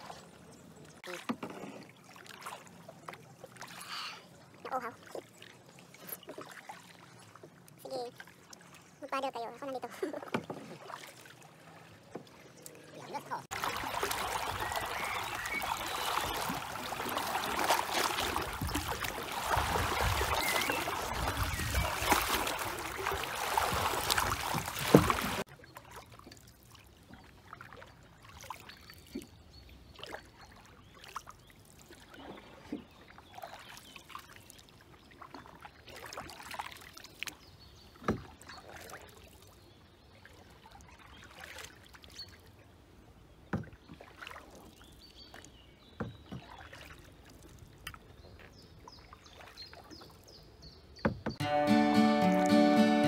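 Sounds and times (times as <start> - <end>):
canoe paddle splashing water: 0.0 - 53.0
water dripping from paddle: 0.9 - 8.8, 12.1 - 29.4, 30.0 - 39.5, 43.6 - 50.3.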